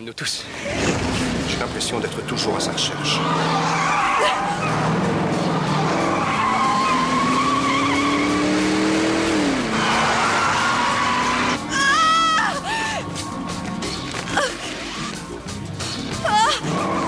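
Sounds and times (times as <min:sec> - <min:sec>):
car engine revving: 0:00.4 - 0:12.8, 0:13.4 - 0:17.0
tyres squealing: 0:00.4 - 0:13.0.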